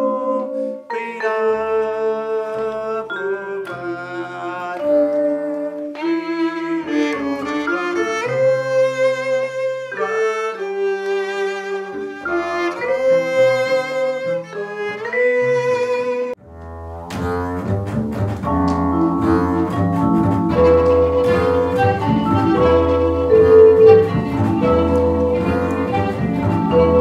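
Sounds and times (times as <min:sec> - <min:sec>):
violin melody with vibrato: 0:00.9 - 0:16.6, 0:18.9 - 0:27.0
double bass line: 0:12.2 - 0:27.0.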